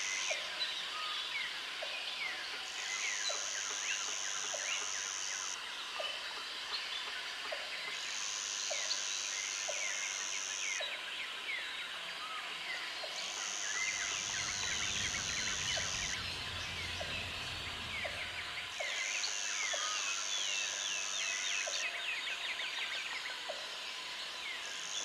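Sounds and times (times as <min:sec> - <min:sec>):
small birds chirping: 0:13.0 - 0:20.8
high insect buzz: 0:13.2 - 0:21.5
low rumble: 0:13.9 - 0:19.1.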